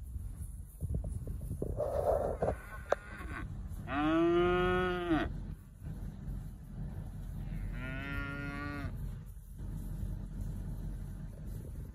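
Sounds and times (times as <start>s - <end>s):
low rumble: 0.1s - 11.9s
cow mooing: 2.4s - 5.3s, 7.5s - 9.0s.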